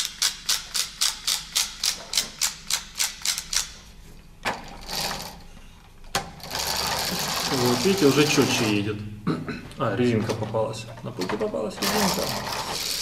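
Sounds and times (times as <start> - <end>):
wooden ratchet clicking: 0.0 - 3.8, 11.8 - 13.0.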